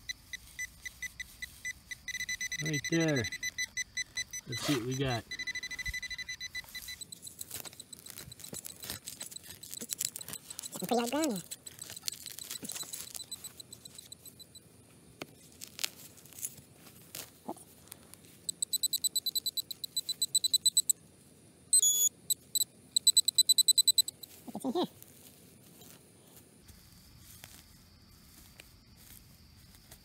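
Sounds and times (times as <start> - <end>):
rapid high beeps: 0.0 - 14.6, 18.5 - 21.0, 21.7 - 24.2.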